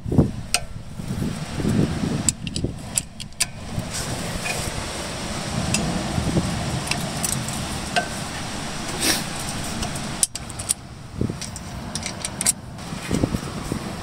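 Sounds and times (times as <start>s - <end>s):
low rumble: 0.0s - 14.0s
wrench clinking on metal bolt: 11.4s - 12.6s.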